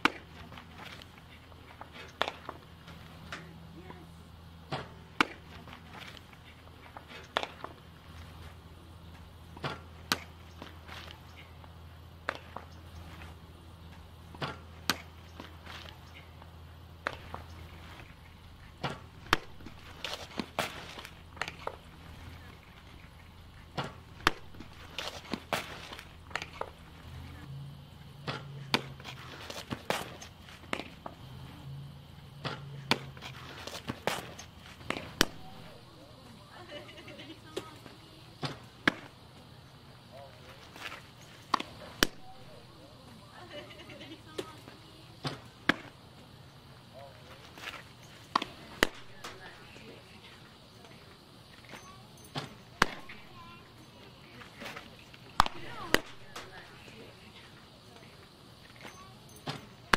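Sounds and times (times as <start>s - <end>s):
low background hum: 0.0s - 59.9s
softballs smacking into mitt: 18.8s - 21.8s, 23.7s - 26.8s, 32.4s - 35.6s, 48.3s - 49.4s, 52.4s - 53.2s, 55.4s - 56.5s.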